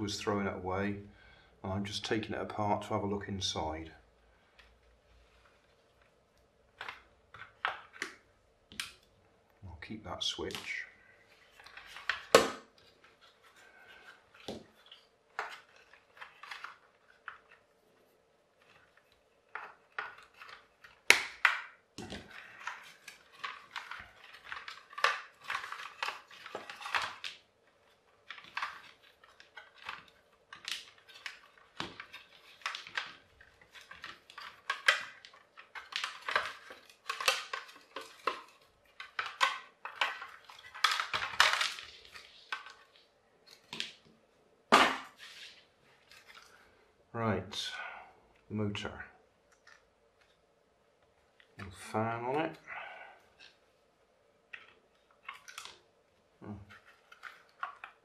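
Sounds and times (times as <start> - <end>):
plastic parts clicking and rattling: 6.7 - 9.1, 10.4 - 17.7, 18.6 - 44.1, 54.5 - 55.8, 56.6 - 58.0.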